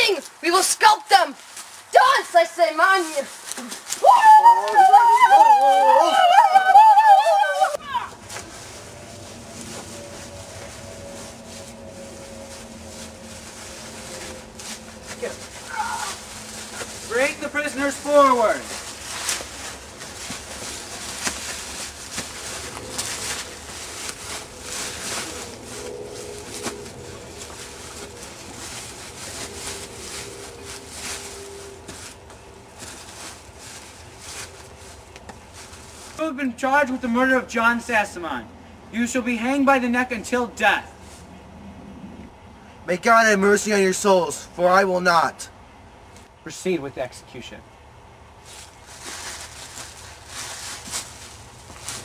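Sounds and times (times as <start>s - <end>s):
background hiss: 0.0s - 4.7s
feet rustling dry leaves: 1.3s - 36.4s, 48.4s - 52.0s
faint hum: 3.6s - 52.0s.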